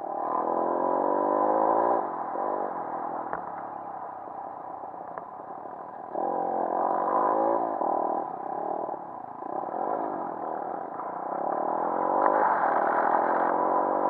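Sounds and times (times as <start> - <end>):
pit bike engine revving: 0.0 - 3.2, 6.0 - 14.0.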